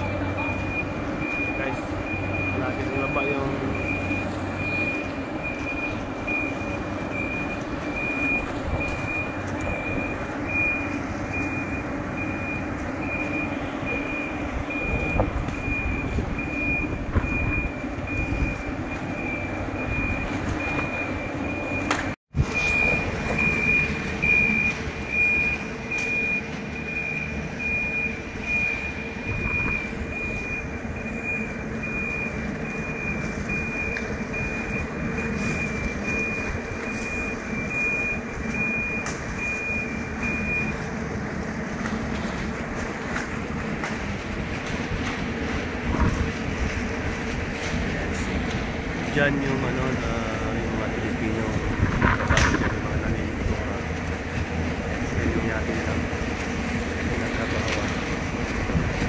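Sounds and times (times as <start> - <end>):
high warning beeps: 0.0 - 40.9.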